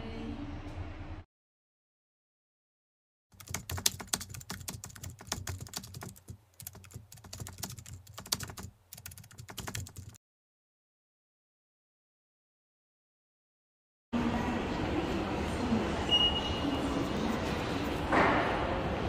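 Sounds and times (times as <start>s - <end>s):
rapid tapping and clicking: 3.4s - 10.2s.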